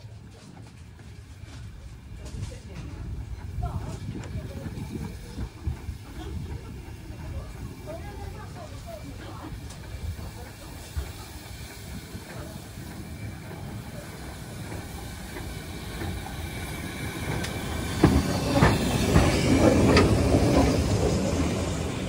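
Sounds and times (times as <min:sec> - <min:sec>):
steam locomotive running slowly: 0:00.0 - 0:22.0
steam hiss: 0:04.7 - 0:22.0.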